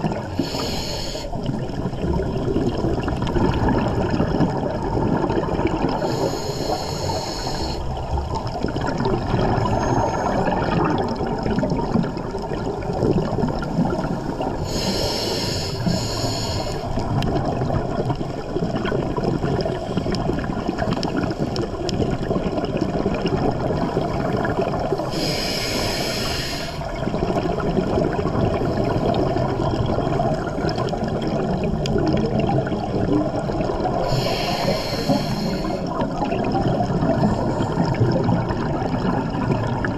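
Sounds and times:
water bubbling and gurgling: 0.0 - 39.9
regulator hissing inhalation: 0.3 - 1.4, 6.0 - 7.9, 14.7 - 16.9, 25.0 - 26.9, 34.0 - 36.0.

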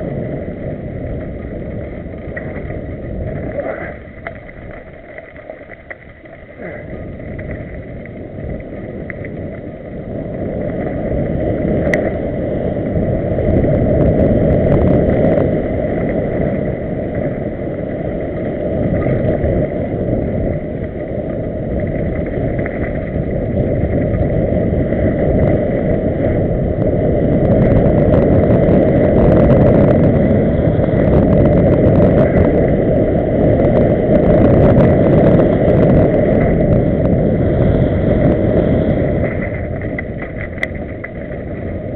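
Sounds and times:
bike rumbling on dirt trail: 0.0 - 41.9
wind buffeting microphone: 0.0 - 41.9.

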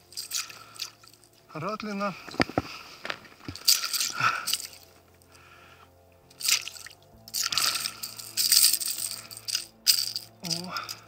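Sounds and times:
fish splashing in water: 6.4 - 8.0.

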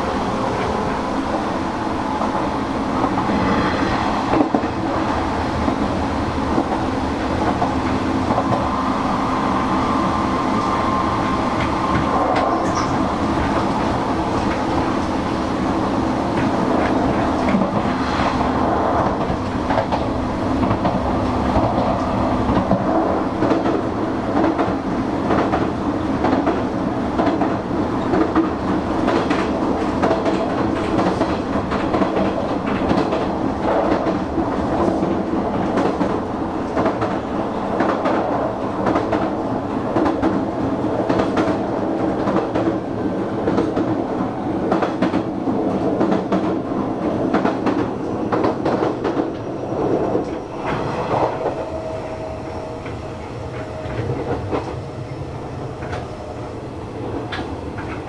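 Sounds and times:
electric train rumbling: 0.0 - 58.0.

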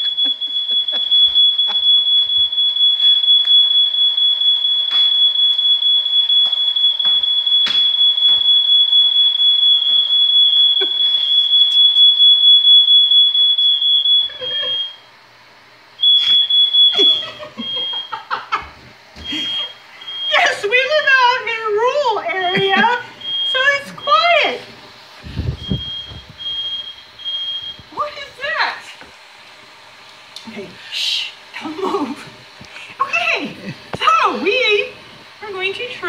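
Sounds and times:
smoke alarm high-pitched tone: 0.0 - 15.0, 16.0 - 18.6, 19.2 - 24.6, 25.2 - 28.8
smoke alarm short beeps: 0.0 - 15.0, 16.0 - 18.2, 19.2 - 20.6, 22.5 - 24.4, 25.6 - 27.8.

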